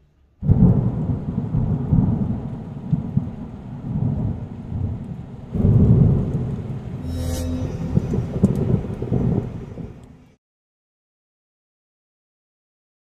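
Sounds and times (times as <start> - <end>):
steady rain: 0.4 - 7.0, 8.2 - 10.4
rumbling thunder: 0.4 - 7.1, 7.8 - 10.2.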